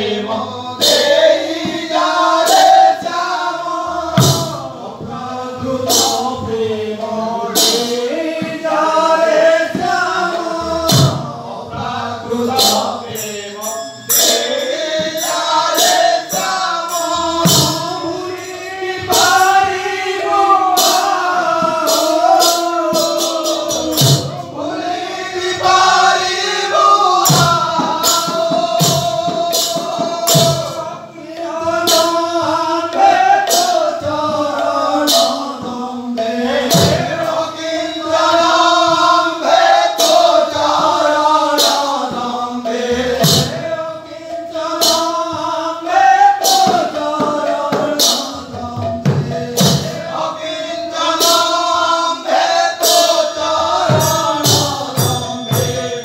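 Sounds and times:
men singing together: 0.0s - 56.0s
hand drum rhythm: 14.2s - 56.0s.

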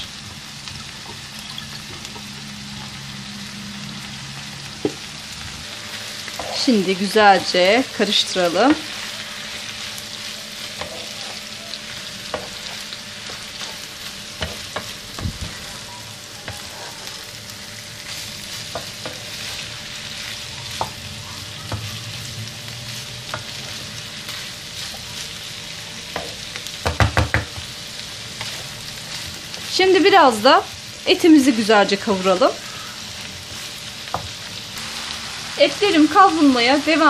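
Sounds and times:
food sizzling in a frying pan: 0.0s - 37.0s
spatula tapping and scraping pan: 10.8s - 11.4s, 12.3s - 13.8s, 14.4s - 15.6s, 26.1s - 27.7s
spatula knocking on pan: 26.2s - 27.7s.

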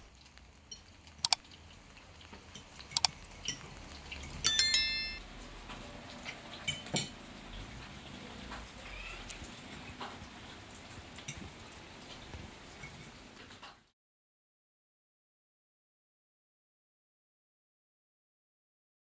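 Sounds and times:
forks clinking on plates: 4.2s - 5.2s, 6.6s - 7.2s.

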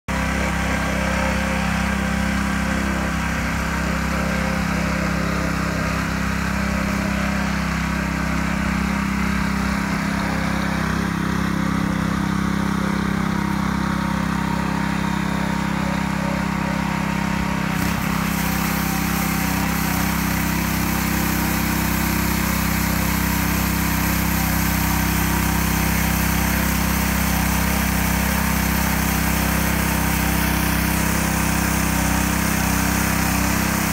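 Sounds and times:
small petrol engine running: 0.1s - 33.9s
weed brush scrubbing kerb: 17.7s - 33.9s.

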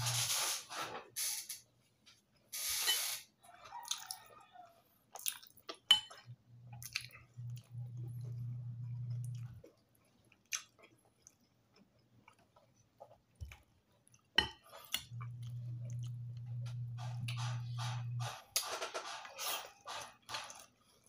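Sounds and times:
chewing and wet mouth noises: 3.6s - 18.1s
steady low hum: 6.2s - 9.6s, 15.0s - 18.5s.

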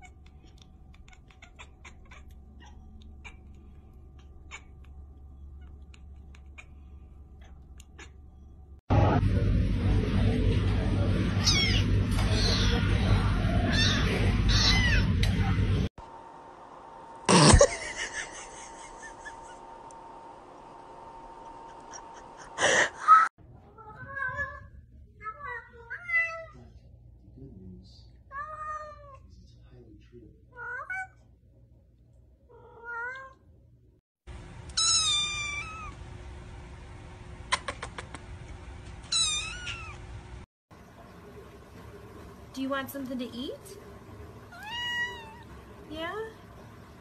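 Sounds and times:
cat meowing: 0.9s - 3.6s, 11.4s - 12.8s, 13.7s - 15.1s, 32.5s - 33.4s, 34.7s - 36.0s, 39.1s - 40.0s, 44.5s - 45.5s
loud rumbling background: 8.9s - 15.9s
kitten meowing: 34.7s - 36.0s, 39.1s - 40.0s, 44.6s - 45.4s.

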